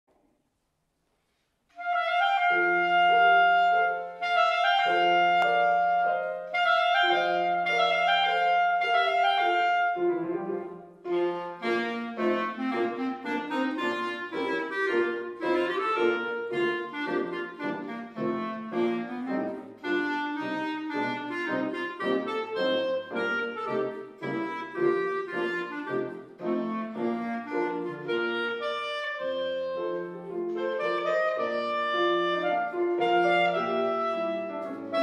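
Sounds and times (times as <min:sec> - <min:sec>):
grand piano: 0:00.1 - 0:35.0
clarinet: 0:01.7 - 0:35.0.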